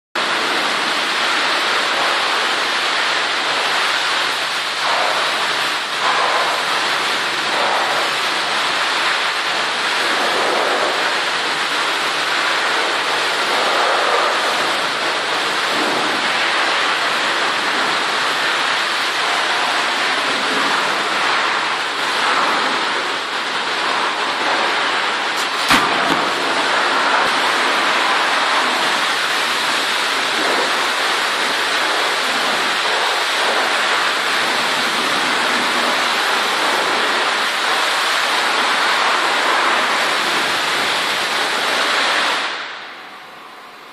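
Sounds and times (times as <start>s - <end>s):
loud rushing noise: 0.2s - 42.9s
heavy log dropped thud: 25.4s - 26.5s.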